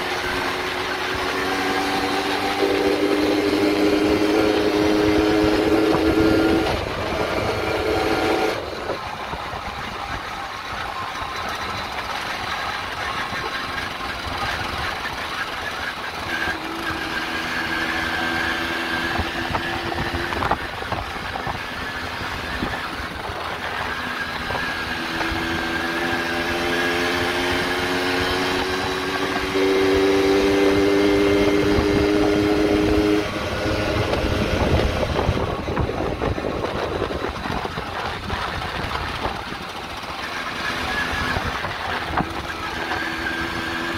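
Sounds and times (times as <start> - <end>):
moped engine running: 0.0 - 43.9
wind rumble on microphone: 18.5 - 26.3, 27.4 - 43.9.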